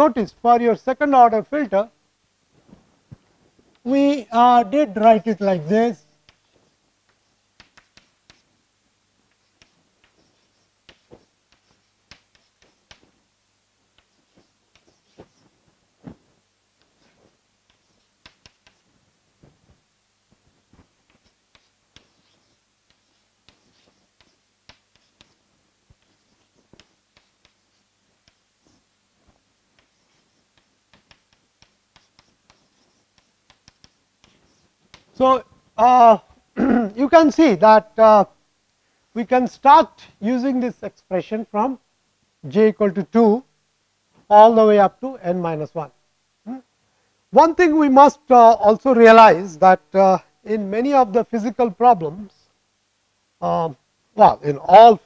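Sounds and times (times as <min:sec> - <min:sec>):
chalk tapping on blackboard: 0:06.2 - 0:08.5, 0:09.3 - 0:13.2, 0:13.9 - 0:16.2, 0:16.8 - 0:18.9, 0:20.4 - 0:35.2.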